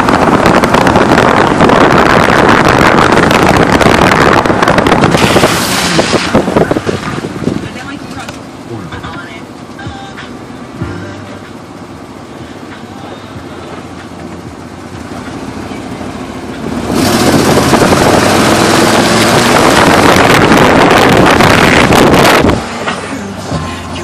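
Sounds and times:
wind rushing on microphone: 0.0s - 7.9s, 16.6s - 22.7s
road and tyre rumble: 0.0s - 24.0s.

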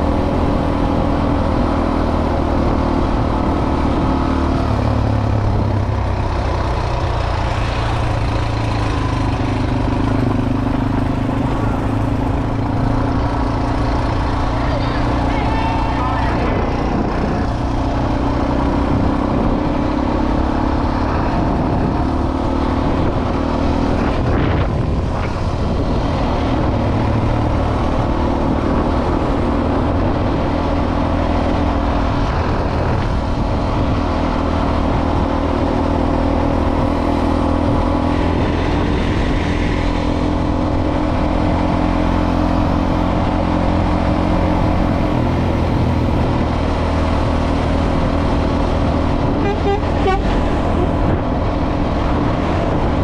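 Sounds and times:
rushing noise: 0.0s - 19.5s, 31.8s - 53.0s
motorcycle engine humming: 0.0s - 53.0s.

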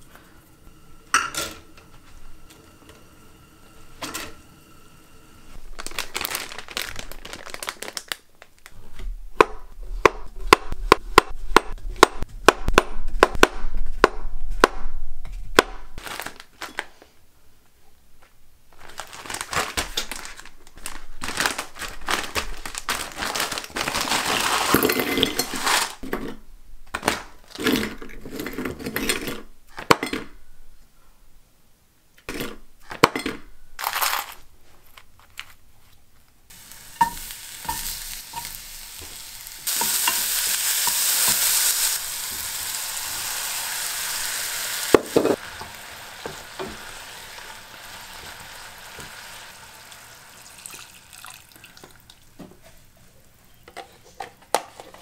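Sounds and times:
utensil scraping food in pan: 36.5s - 47.1s
frying sizzle: 36.5s - 52.4s.

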